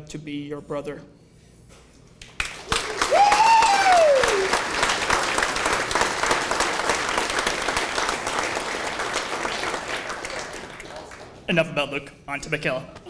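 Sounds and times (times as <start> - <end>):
people applauding: 2.3 - 11.5.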